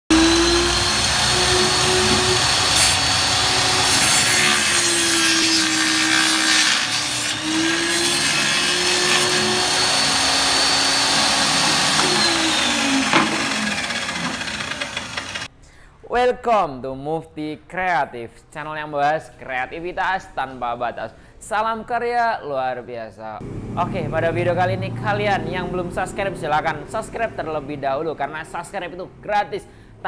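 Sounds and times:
circular saw cutting wood: 0.1 - 15.5.

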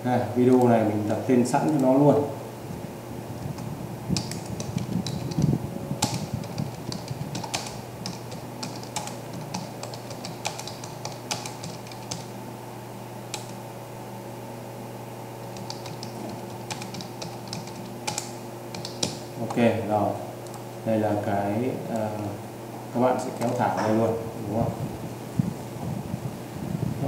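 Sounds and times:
steady low hum: 0.0 - 27.0
keyboard key clicks: 15.6 - 19.6.

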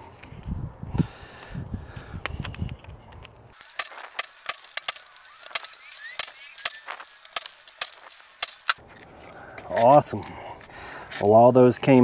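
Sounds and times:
metallic clicks of drill on bolts: 3.6 - 8.8.

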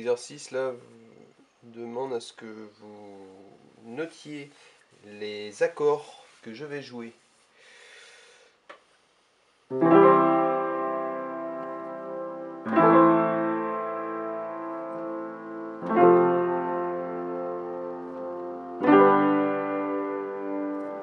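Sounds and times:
piano chords ringing: 9.7 - 21.0.

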